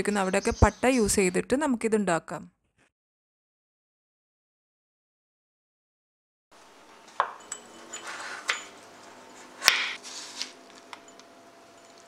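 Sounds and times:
knife chopping on wooden board: 0:07.2 - 0:07.4, 0:09.6 - 0:10.5.

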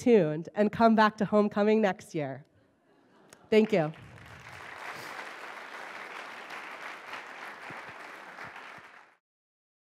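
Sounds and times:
audience applauding: 0:03.6 - 0:09.2.

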